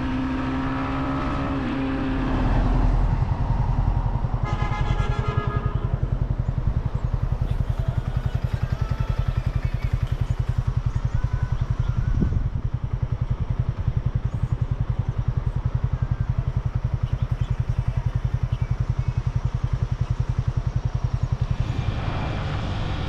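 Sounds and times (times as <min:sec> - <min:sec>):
motorbike engine running: 0:00.0 - 0:23.0
horn sounding: 0:04.4 - 0:06.2.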